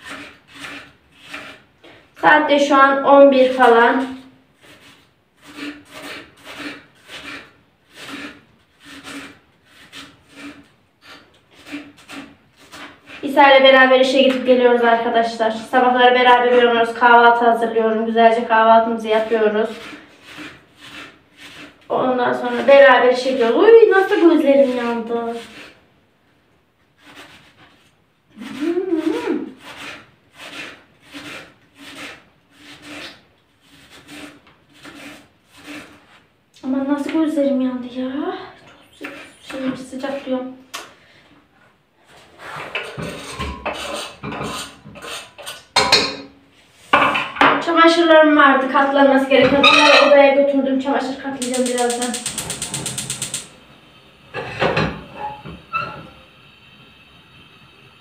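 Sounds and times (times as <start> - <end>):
knife slicing onion: 0.0 - 14.6, 19.0 - 25.8, 26.9 - 36.2, 51.4 - 53.5.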